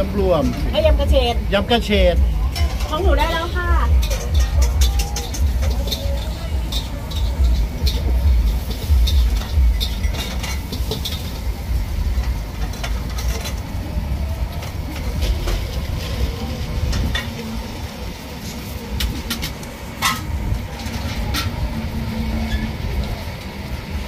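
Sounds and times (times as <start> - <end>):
low rumble of background din: 0.0 - 24.0
metal spoons clinking on bowls: 2.4 - 11.4
metal clank: 2.4 - 13.7, 19.0 - 21.7.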